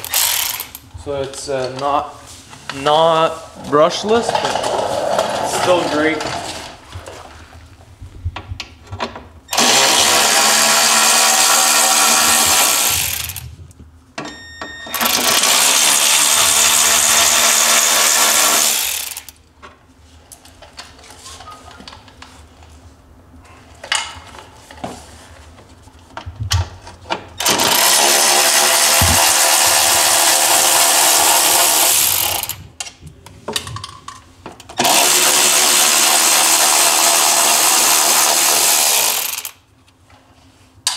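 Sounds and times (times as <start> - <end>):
electric ratchet running: 0.0 - 0.8, 9.5 - 13.5, 14.9 - 19.4, 27.4 - 32.6, 34.8 - 39.6.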